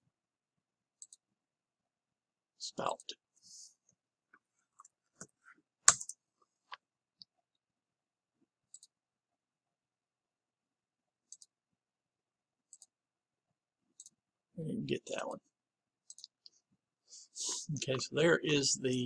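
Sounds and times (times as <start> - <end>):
mouse and keyboard clicks: 5.9 - 6.2, 8.7 - 8.9.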